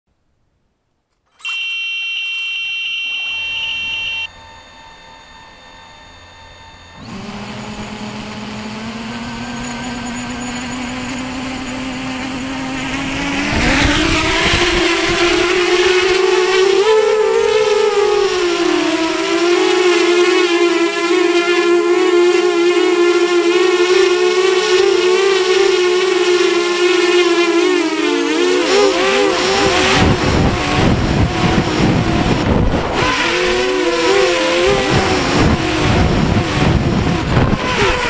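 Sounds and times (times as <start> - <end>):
electronic beep tone: 1.3 - 8.1, 9.3 - 14.1
drone motors humming and whining: 1.4 - 38.0.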